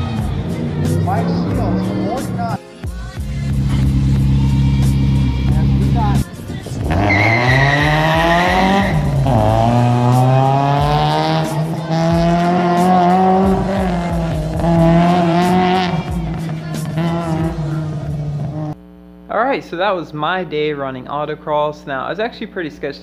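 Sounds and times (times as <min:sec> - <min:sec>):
race car engine revving: 0:00.0 - 0:02.6, 0:03.4 - 0:18.8
tyre squeal: 0:06.9 - 0:09.5.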